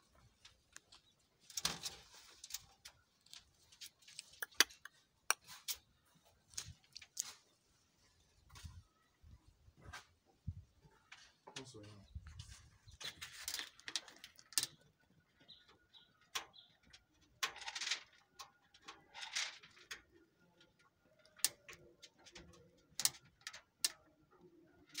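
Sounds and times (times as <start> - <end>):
rabbit crunching food: 0.5 - 5.8.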